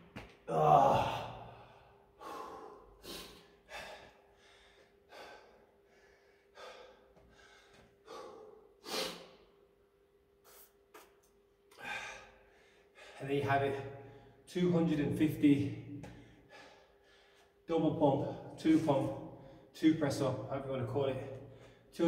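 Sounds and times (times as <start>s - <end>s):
man breathing hard and gasping: 0.8s - 9.5s, 11.7s - 13.2s, 16.0s - 17.6s.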